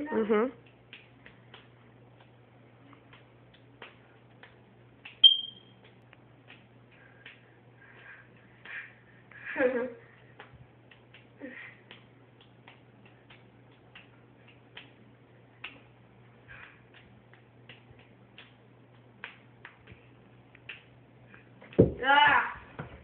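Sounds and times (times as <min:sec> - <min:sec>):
low steady hum: 0:00.0 - 0:23.0
juggling balls slapping into hands: 0:00.6 - 0:02.4, 0:03.0 - 0:08.9, 0:10.3 - 0:15.0, 0:15.6 - 0:15.9, 0:16.5 - 0:21.0.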